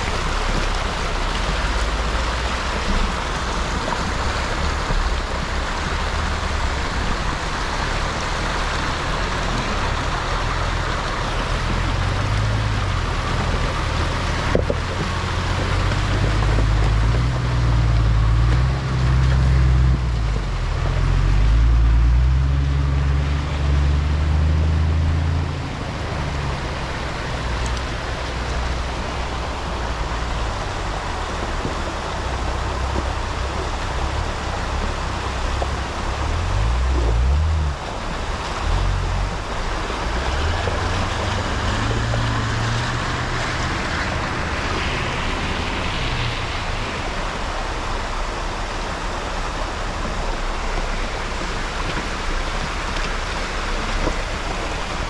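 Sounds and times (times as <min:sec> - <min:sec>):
off-road vehicle engine revving: 0:00.0 - 0:55.0
steady rushing noise: 0:00.0 - 0:55.0.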